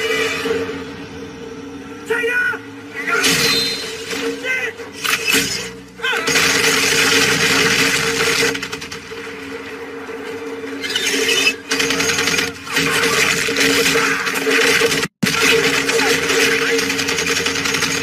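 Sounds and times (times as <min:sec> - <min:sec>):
automatic gunfire: 0:06.3 - 0:08.7.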